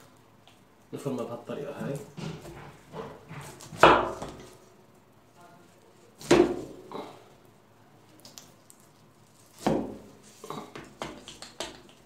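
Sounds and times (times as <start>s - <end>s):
knife chopping in metal tray: 2.0s - 4.6s, 6.2s - 6.9s, 9.6s - 10.2s.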